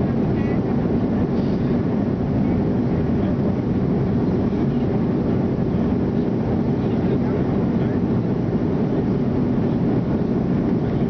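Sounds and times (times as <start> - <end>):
jet engine cabin rumble: 0.0 - 11.0.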